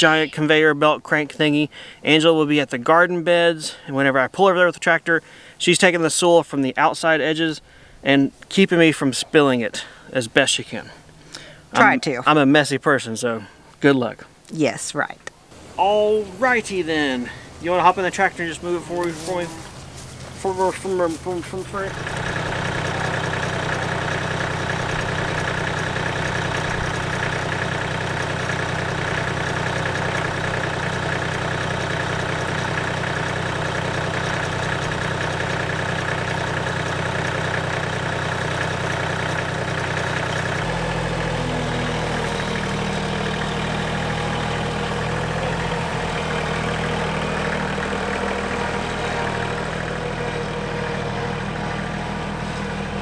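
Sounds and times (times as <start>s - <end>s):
tractor diesel engine running: 15.5s - 53.0s.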